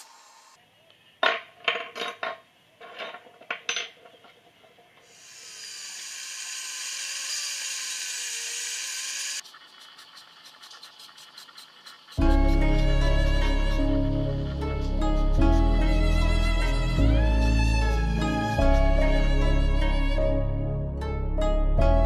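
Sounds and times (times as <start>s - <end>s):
rotary tool sanding metal: 5.0s - 13.9s.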